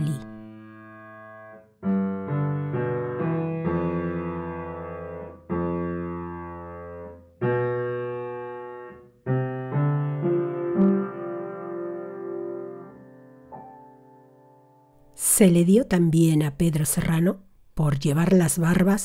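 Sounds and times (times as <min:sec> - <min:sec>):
slow piano chords: 0:00.0 - 0:15.1.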